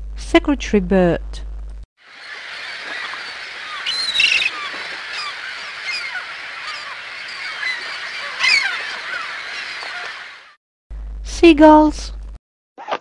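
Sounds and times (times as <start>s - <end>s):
gulls calling: 2.0s - 10.6s.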